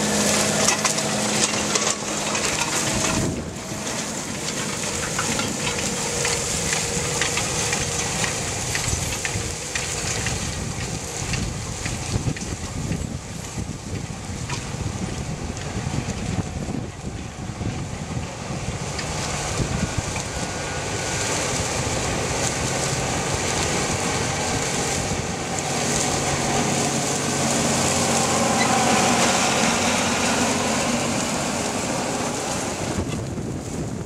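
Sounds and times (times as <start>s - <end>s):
tractor diesel engine under load: 0.0s - 34.0s
wind buffeting microphone: 0.0s - 34.0s
discs rattling in dirt: 0.4s - 13.2s.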